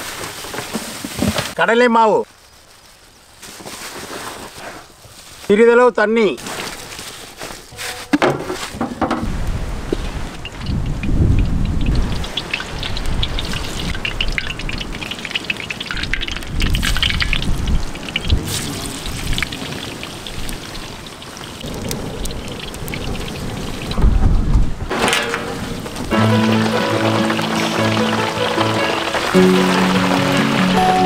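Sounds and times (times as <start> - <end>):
batter deep-frying in oil: 9.8 - 30.8.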